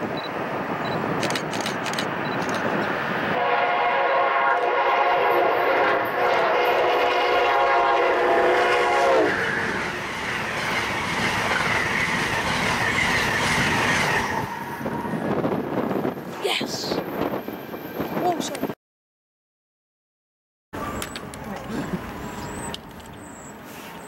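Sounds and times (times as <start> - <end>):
train cars rushing and clattering: 0.0 - 18.8, 20.8 - 24.0
train horn blast: 3.4 - 9.8.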